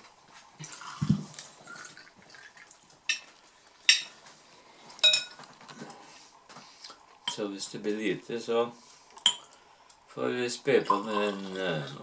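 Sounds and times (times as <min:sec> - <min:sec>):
glass and tableware clinking: 0:03.1 - 0:03.3, 0:03.9 - 0:04.2, 0:05.0 - 0:05.4, 0:09.2 - 0:09.5, 0:10.8 - 0:11.5
liquid pouring into glass: 0:10.8 - 0:12.0.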